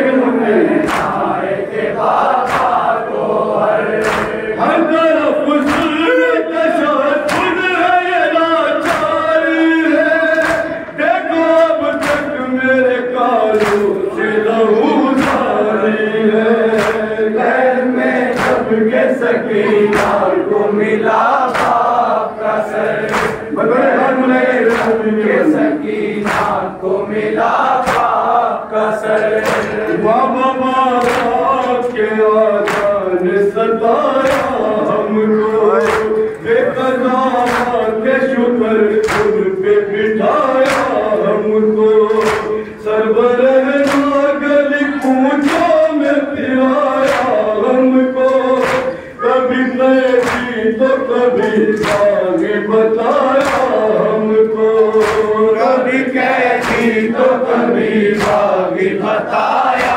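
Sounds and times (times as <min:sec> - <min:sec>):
men chanting through loudspeaker: 0:00.0 - 0:59.9
hands slapping chests: 0:00.7 - 0:01.3, 0:02.1 - 0:02.9, 0:03.9 - 0:04.4, 0:05.6 - 0:06.0, 0:07.2 - 0:07.6, 0:08.8 - 0:09.2, 0:10.2 - 0:10.9, 0:11.9 - 0:12.3, 0:13.5 - 0:14.0, 0:15.1 - 0:15.6, 0:16.7 - 0:17.1, 0:18.2 - 0:18.8, 0:19.7 - 0:20.3, 0:21.4 - 0:22.0, 0:23.0 - 0:23.5, 0:24.6 - 0:25.1, 0:26.2 - 0:26.6, 0:27.7 - 0:28.3, 0:29.4 - 0:29.9, 0:31.0 - 0:31.5, 0:32.6 - 0:33.0, 0:34.2 - 0:34.7, 0:35.8 - 0:36.4, 0:37.4 - 0:37.8, 0:39.0 - 0:39.4, 0:40.5 - 0:41.0, 0:42.1 - 0:42.7, 0:43.8 - 0:44.2, 0:47.0 - 0:47.4, 0:48.3 - 0:48.9, 0:50.0 - 0:50.6, 0:51.4 - 0:52.5, 0:53.1 - 0:53.9, 0:54.9 - 0:55.4, 0:56.5 - 0:57.0, 0:58.2 - 0:58.6, 0:59.7 - 0:59.9.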